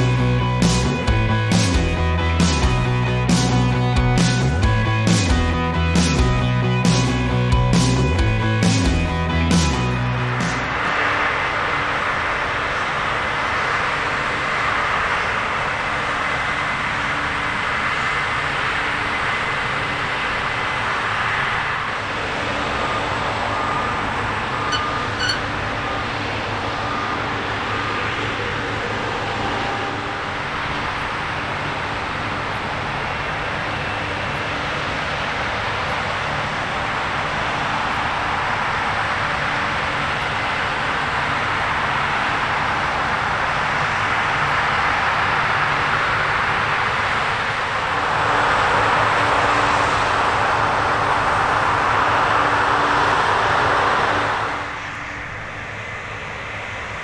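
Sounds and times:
combine harvester running: 8.2s - 57.0s.

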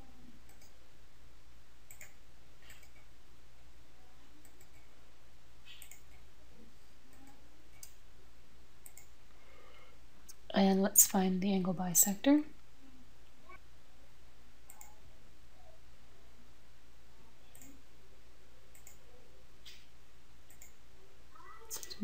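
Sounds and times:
faint steady low hum: 0.0s - 22.0s
computer mouse clicking: 0.5s - 0.8s, 1.9s - 3.1s, 4.4s - 4.8s, 5.7s - 6.2s, 8.8s - 9.1s, 14.7s - 15.0s, 17.5s - 17.8s, 18.7s - 19.0s, 20.5s - 20.8s.

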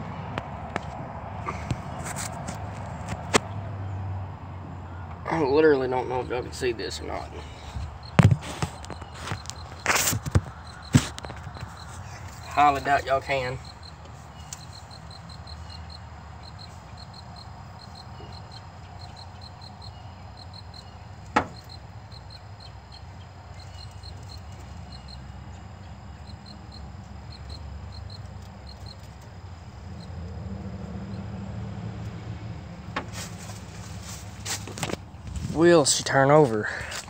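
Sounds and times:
faint high chirping: 4.7s - 29.2s.

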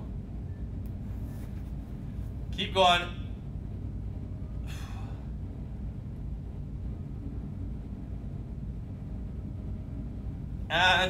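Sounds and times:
low room rumble: 0.0s - 11.0s.

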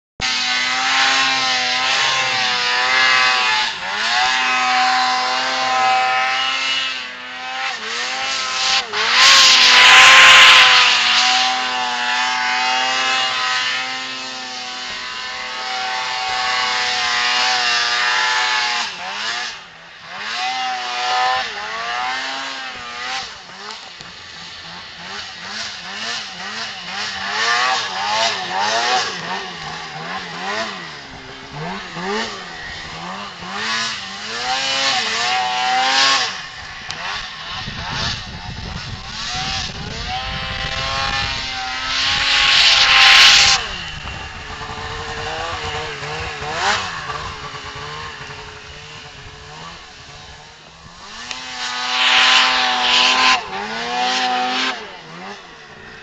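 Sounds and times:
snowmobile engine revving: 0.2s - 56.0s
loud rush of noise: 23.2s - 53.6s.

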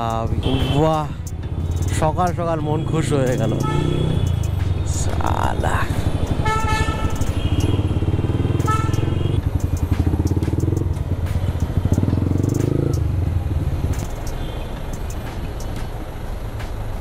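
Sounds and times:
traffic engines: 0.0s - 17.0s
motorcycle engine running: 3.2s - 16.0s.

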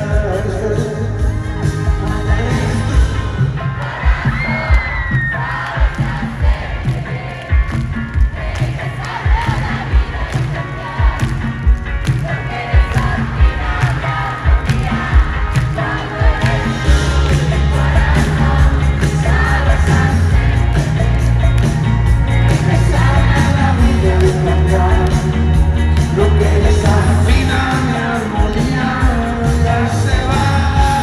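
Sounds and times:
person singing: 0.0s - 5.6s, 12.2s - 31.0s
live rock band playing: 0.0s - 31.0s.

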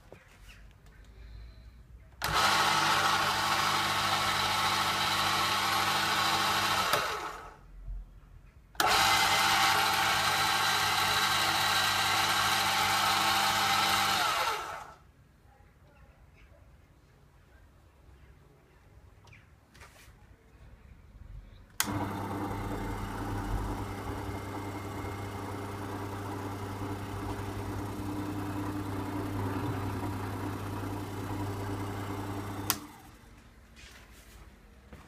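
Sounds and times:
lathe motor humming and whirring: 8.8s - 14.9s, 21.8s - 33.2s.

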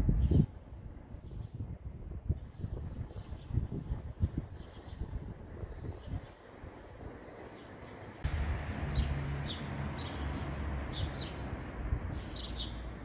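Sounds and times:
small birds chirping: 0.1s - 13.0s
low outdoor rumble: 8.2s - 13.0s.

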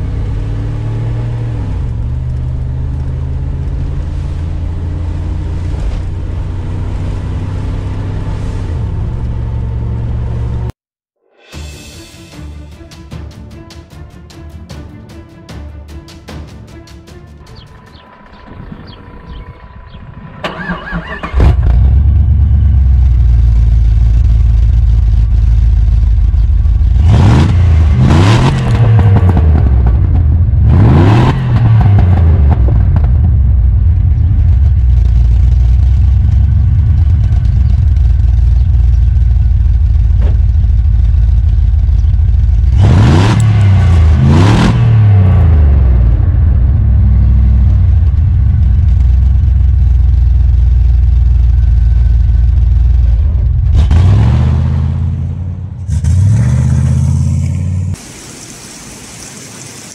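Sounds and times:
engine revving: 0.0s - 10.8s, 17.4s - 58.0s
car engine idling: 17.4s - 27.1s, 32.3s - 42.8s, 45.5s - 54.1s.

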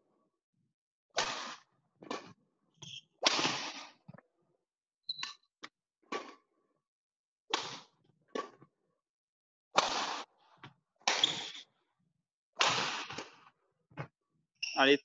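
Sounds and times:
rackets hitting shuttlecock: 1.2s - 4.2s, 6.1s - 6.4s, 7.5s - 8.7s, 9.8s - 11.7s, 12.6s - 14.1s
shoe squeaks: 2.8s - 3.2s, 5.1s - 5.5s, 11.1s - 11.7s, 14.6s - 15.0s.

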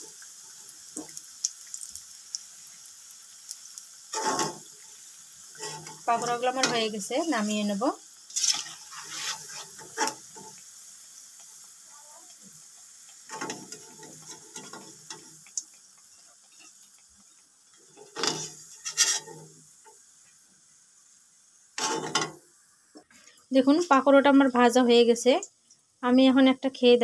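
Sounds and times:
faint oil sizzling: 0.0s - 27.0s
metal skimmer scraping a metal pan: 4.1s - 4.8s, 5.5s - 7.0s, 8.3s - 10.6s, 13.3s - 15.3s, 18.0s - 19.5s, 21.8s - 22.4s.

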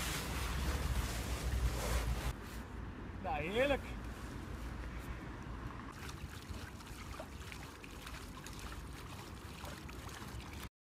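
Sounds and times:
hands splashing water: 5.9s - 10.7s.

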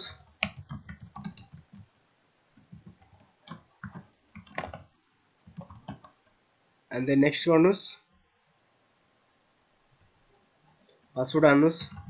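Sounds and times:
computer keyboard typing: 0.0s - 1.9s, 2.6s - 4.9s, 5.5s - 6.2s, 11.8s - 12.0s.

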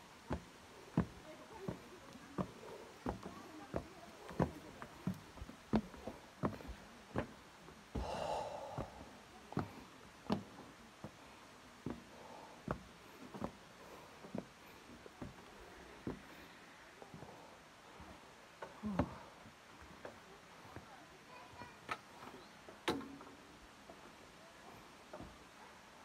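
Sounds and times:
footsteps on metal stairs: 0.3s - 7.4s, 8.0s - 11.2s, 11.8s - 13.6s
breathy exhale: 8.0s - 9.1s.

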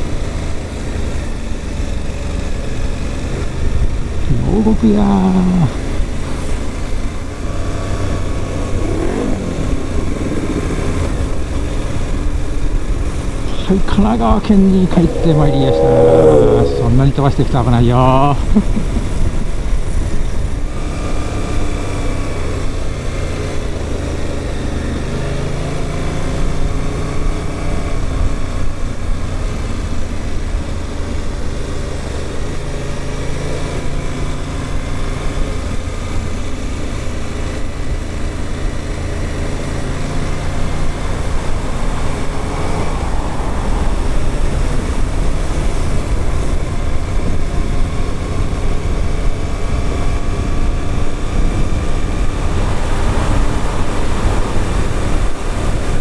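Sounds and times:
motorcycle engine revving: 5.4s - 13.4s, 14.2s - 17.2s
wind rushing: 13.8s - 17.2s.

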